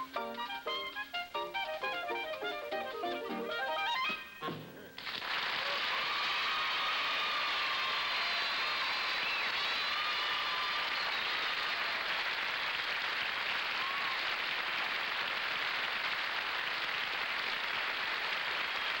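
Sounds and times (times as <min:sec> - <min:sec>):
audience applauding: 0:05.0 - 0:19.0
faint whistle in crowd: 0:08.3 - 0:11.7.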